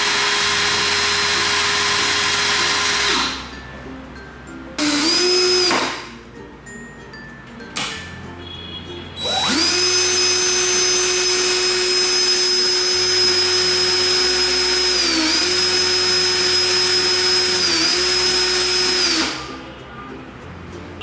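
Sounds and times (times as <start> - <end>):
cordless drill motor whine: 0.0 - 3.5, 4.8 - 6.0, 9.2 - 19.4.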